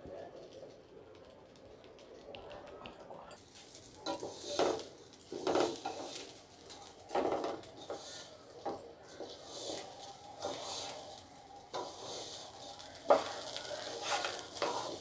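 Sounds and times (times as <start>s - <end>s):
wooden spatula scraping a pot: 4.0s - 15.0s.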